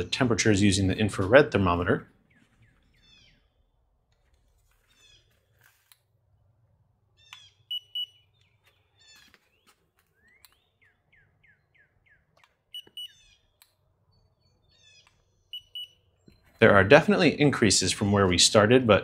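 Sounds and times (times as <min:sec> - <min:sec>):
birds chirping: 0:00.0 - 0:05.6, 0:06.6 - 0:19.0
thermometer beeping: 0:07.6 - 0:08.4, 0:12.6 - 0:13.3, 0:15.4 - 0:16.6.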